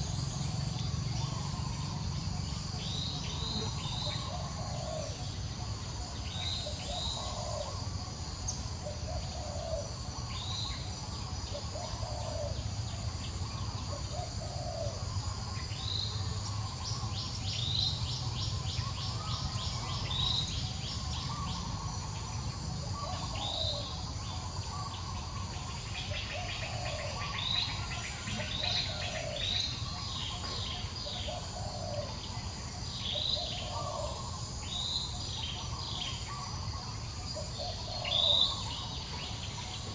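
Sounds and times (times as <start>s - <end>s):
lower bird calls: 0.0s - 39.9s
birds chirping: 8.5s - 39.9s.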